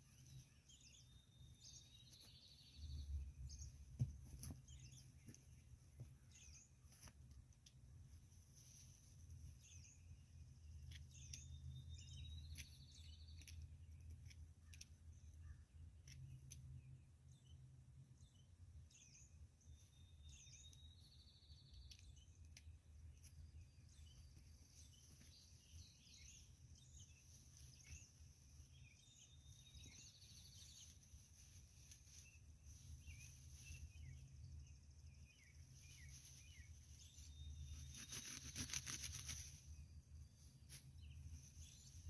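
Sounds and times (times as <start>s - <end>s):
bird chirps: 0.0s - 42.0s
bird song with buzzy trill: 0.0s - 42.0s
plant stems crackling: 37.8s - 39.6s.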